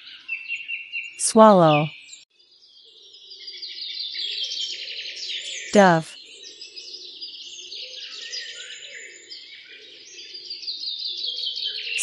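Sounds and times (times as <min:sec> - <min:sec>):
low background sound: 0:01.2 - 0:01.9, 0:05.8 - 0:06.1.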